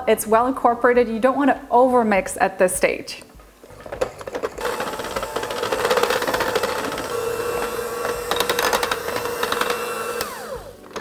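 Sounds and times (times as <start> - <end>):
electric hand mixer whine: 4.6 - 11.0.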